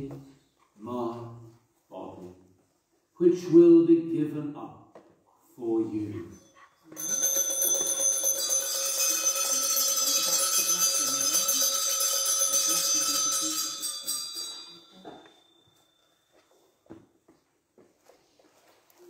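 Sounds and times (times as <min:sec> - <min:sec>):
altar bells jingling: 0:06.3 - 0:16.8.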